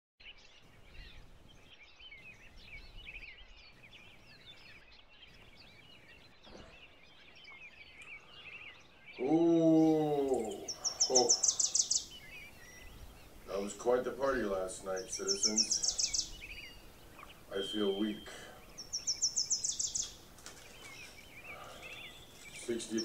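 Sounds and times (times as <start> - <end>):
small birds chirping: 0.2 - 23.0
loud animal call: 9.2 - 12.2
fast high-pitched bird trill: 14.9 - 16.8, 17.5 - 20.1.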